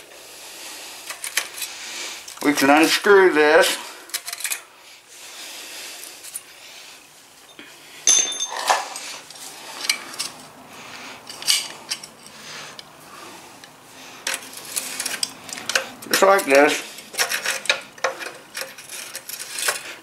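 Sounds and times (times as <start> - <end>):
metal clinks: 7.4 - 9.2
ringing metal clink: 7.5 - 9.0
metal scraping: 14.2 - 20.0.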